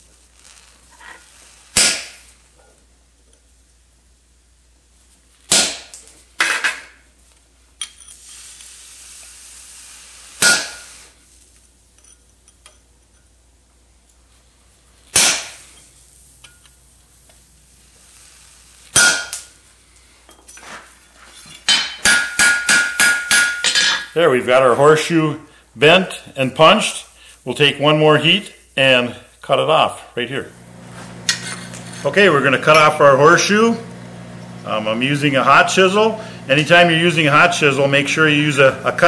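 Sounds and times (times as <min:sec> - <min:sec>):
hammer striking punch on anvil: 0:01.8 - 0:02.2, 0:10.4 - 0:10.8, 0:15.2 - 0:15.6, 0:19.0 - 0:19.4, 0:21.7 - 0:24.1.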